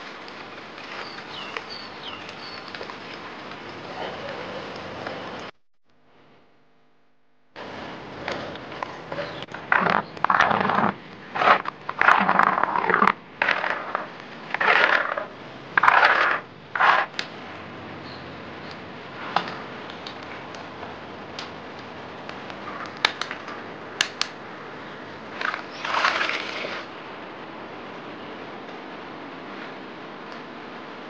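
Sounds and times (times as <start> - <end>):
stone mill grinding beans: 9.6 - 17.2.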